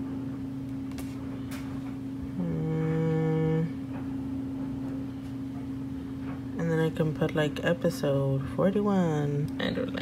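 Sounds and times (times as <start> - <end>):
steady low hum: 0.0 - 10.0
person humming: 2.4 - 3.8.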